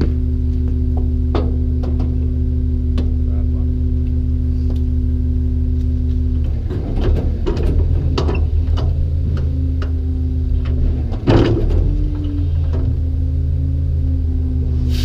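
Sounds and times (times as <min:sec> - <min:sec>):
garbage truck engine idling: 0:00.0 - 0:15.0
hydraulic whine: 0:00.0 - 0:15.0
metal clanks: 0:06.4 - 0:13.1.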